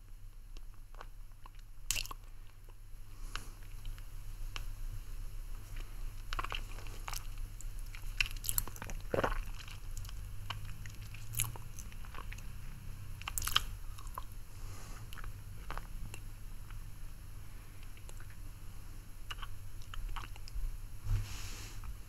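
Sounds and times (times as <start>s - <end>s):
low steady hum: 0.0s - 22.0s
wet mouth clicks and smacks: 13.2s - 14.3s, 19.3s - 20.6s.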